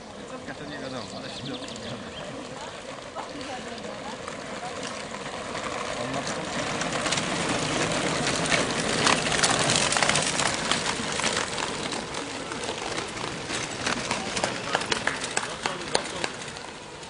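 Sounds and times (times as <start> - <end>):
bike tyres crunching on gravel: 0.1 - 17.0.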